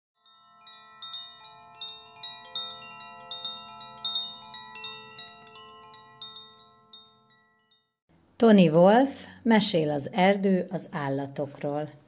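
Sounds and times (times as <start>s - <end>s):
chimes ringing: 0.2s - 8.0s.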